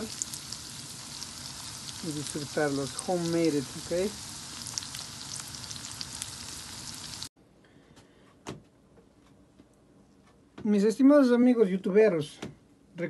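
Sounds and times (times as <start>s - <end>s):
noodles sizzling in oil: 0.0s - 7.3s.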